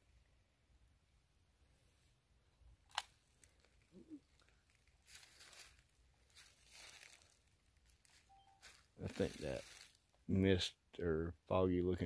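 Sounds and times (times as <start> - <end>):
soft rustles: 3.1 - 10.1.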